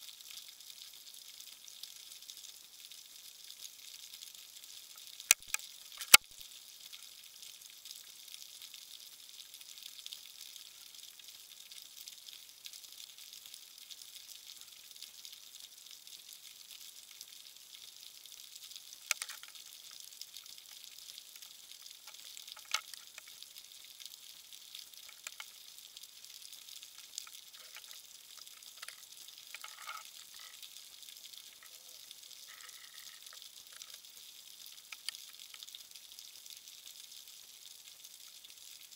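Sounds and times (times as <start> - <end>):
sharp underwater clicks: 5.3 - 6.3, 19.1 - 19.6, 22.1 - 23.3, 25.0 - 25.5, 34.8 - 35.6
underwater crackling hiss: 26.5 - 35.7.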